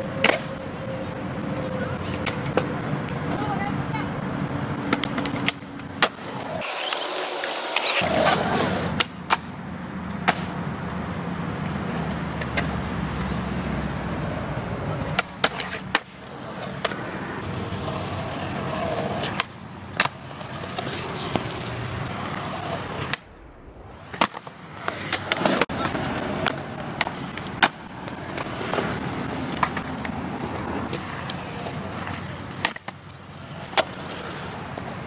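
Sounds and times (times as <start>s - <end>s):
skateboard wheels rolling on concrete: 0.0s - 35.0s
skateboard clacks: 0.2s - 0.6s, 1.5s - 3.7s, 4.8s - 11.0s, 15.0s - 17.2s, 17.8s - 21.6s, 24.1s - 35.0s.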